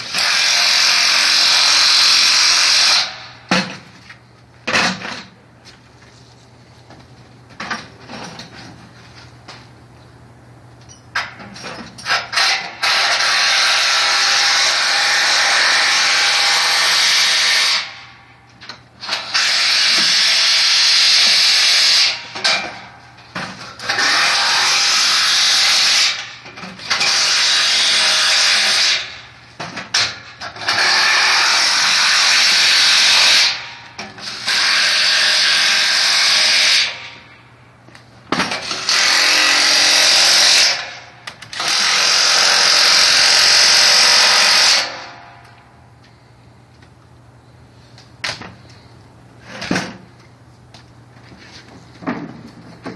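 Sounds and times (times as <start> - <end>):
cordless drill boring into concrete: 0.1 - 3.1, 34.2 - 36.8, 38.7 - 40.8, 41.5 - 44.9.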